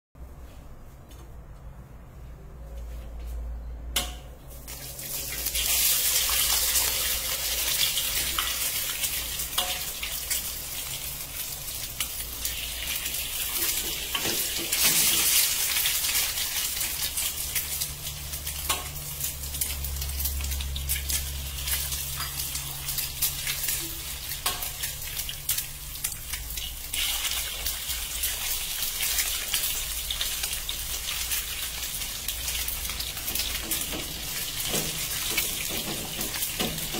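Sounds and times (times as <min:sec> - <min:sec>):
eggs sizzling in hot oil: 0:04.6 - 0:36.9.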